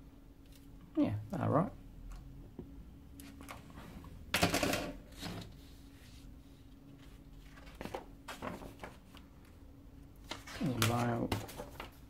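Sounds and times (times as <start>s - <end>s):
magazine pages rustling: 6.9s - 9.6s, 10.2s - 12.0s.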